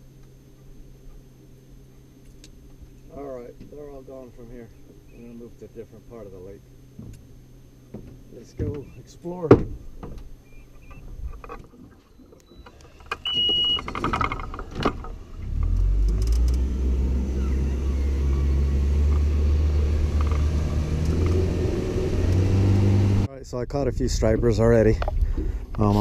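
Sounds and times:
outboard motor running: 0.0 - 23.3, 25.0 - 26.0
electronic beep: 10.4 - 11.1, 12.0 - 13.9.

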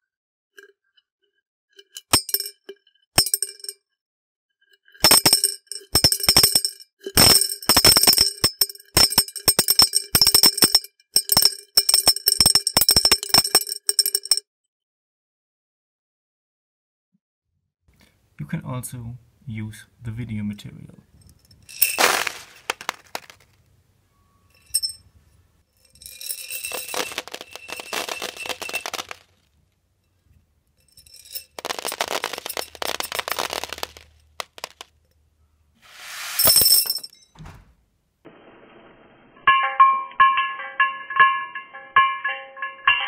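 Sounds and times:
pills clinking into a glass: 1.9 - 3.8, 5.0 - 14.4, 21.3 - 23.5, 25.8 - 29.4, 30.8 - 34.9.

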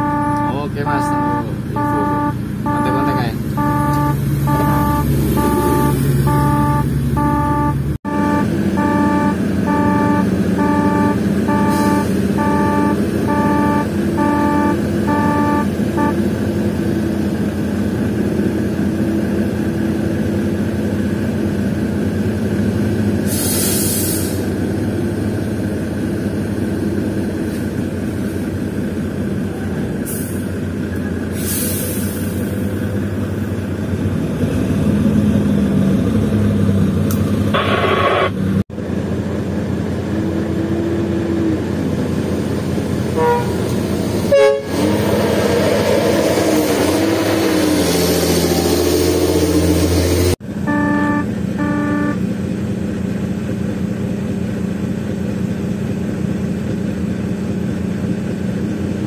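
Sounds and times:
alarm beeping: 0.0 - 16.2, 50.6 - 52.2
diesel truck engine running: 0.0 - 59.0
air hiss bursts: 23.3 - 24.4.

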